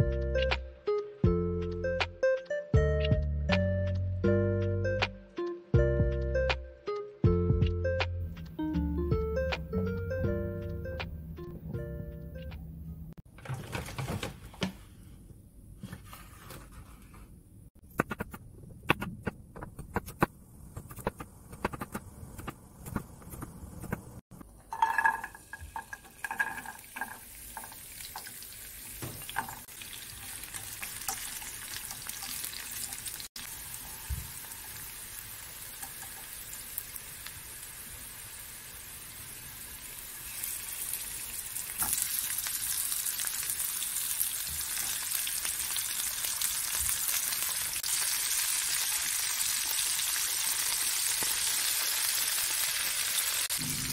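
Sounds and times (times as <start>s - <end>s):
garlic sizzling in frying pan: 24.6s - 53.9s.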